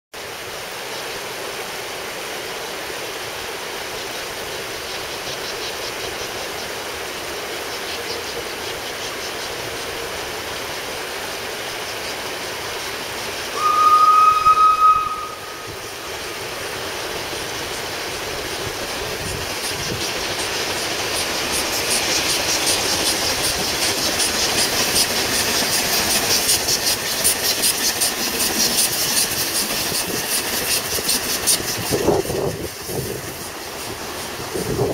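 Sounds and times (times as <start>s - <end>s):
steam locomotive exhaust beats: 3.1s - 34.9s
steam whistle: 13.5s - 16.5s.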